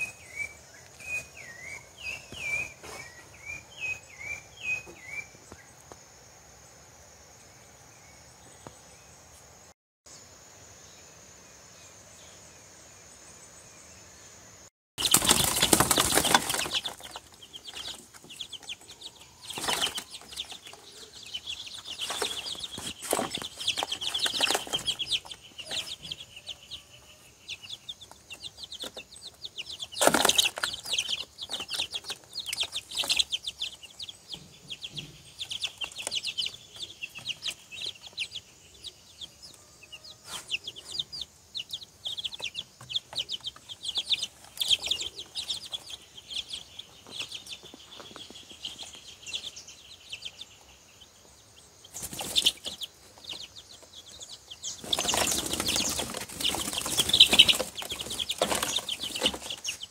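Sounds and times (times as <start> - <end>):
chicks peeping: 0.0 - 6.2, 15.0 - 59.9
wing flapping and scuffling: 15.0 - 26.2, 27.9 - 34.1, 51.8 - 59.9.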